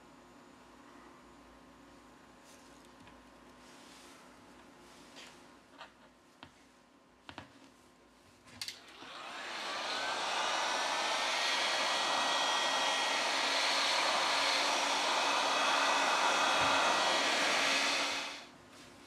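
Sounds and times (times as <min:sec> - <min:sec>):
heat gun fan blowing: 0:08.6 - 0:18.6.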